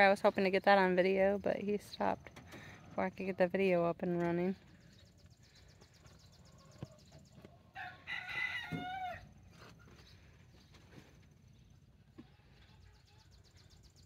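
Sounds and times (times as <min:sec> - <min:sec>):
rooster crowing: 0:07.7 - 0:09.4.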